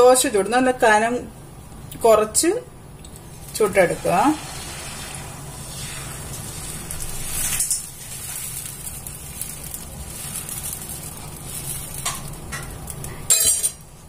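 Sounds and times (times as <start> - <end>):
batter sizzling on hot pan: 3.1 - 14.0.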